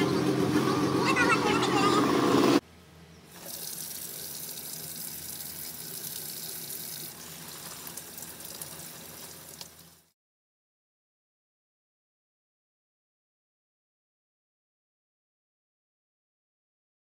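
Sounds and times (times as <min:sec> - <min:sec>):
tap water splashing into sink: 0:03.4 - 0:09.8.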